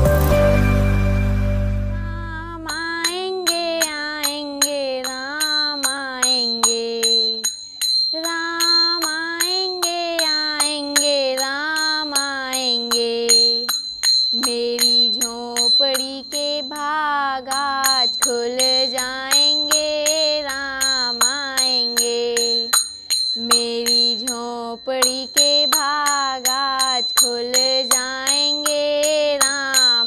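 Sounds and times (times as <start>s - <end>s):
melodic lead with bending notes: 0.0s - 2.6s
ticking beat: 2.6s - 16.8s, 17.5s - 30.0s.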